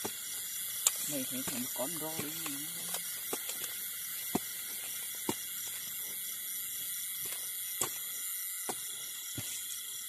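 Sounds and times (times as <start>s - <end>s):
night insects chirping: 0.0s - 10.0s
hoe chopping into soil: 0.8s - 5.7s.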